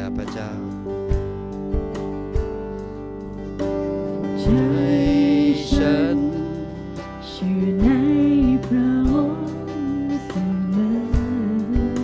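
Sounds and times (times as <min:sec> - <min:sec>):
keyboard and guitar chords: 0:00.0 - 0:12.0
soft low beats: 0:00.0 - 0:12.0
person singing long notes: 0:04.4 - 0:12.0.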